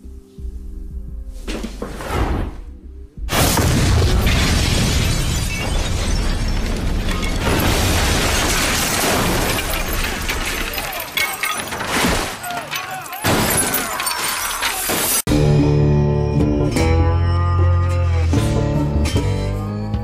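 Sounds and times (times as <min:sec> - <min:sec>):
background music: 0:00.0 - 0:04.7, 0:15.3 - 0:20.0
heavy explosion boom: 0:03.3 - 0:08.6
glass shattering and debris falling: 0:03.3 - 0:15.3.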